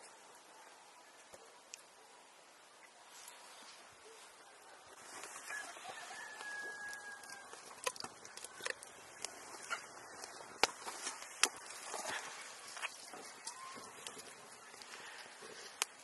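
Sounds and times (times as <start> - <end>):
rooster crowing faintly: 4.0 - 8.0.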